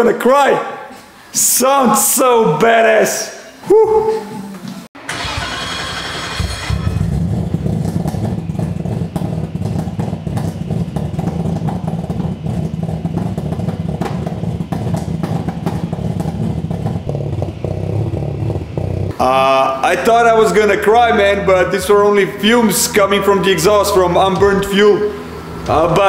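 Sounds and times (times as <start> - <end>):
car engine idling with crackles: 5.1 - 19.2.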